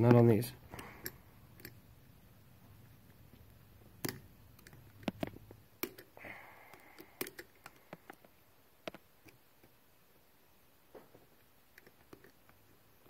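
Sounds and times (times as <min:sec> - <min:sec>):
small metal clicks and taps: 0:04.0 - 0:09.7.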